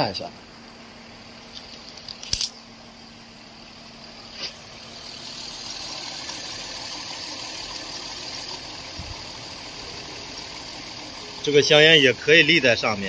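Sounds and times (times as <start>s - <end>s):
car engine idling: 0.1s - 13.0s
sharp click: 1.6s - 2.6s.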